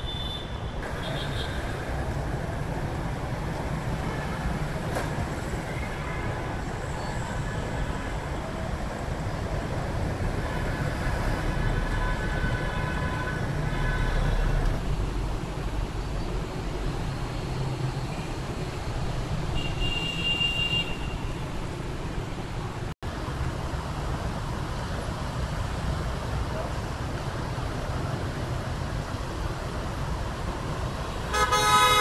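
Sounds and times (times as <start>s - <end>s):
car and bus engines: 0.8s - 19.6s, 21.3s - 32.0s.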